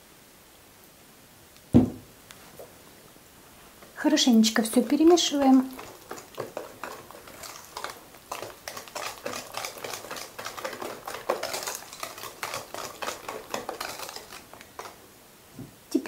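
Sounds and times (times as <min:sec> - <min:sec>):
whisk clicking in metal bowl: 0:04.3 - 0:15.0.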